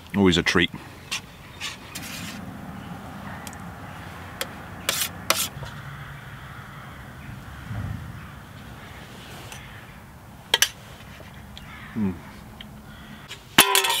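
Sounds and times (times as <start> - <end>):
steady outdoor hiss: 0.0 - 14.0
metal spoon scraping a pot: 4.4 - 5.6, 13.6 - 14.0.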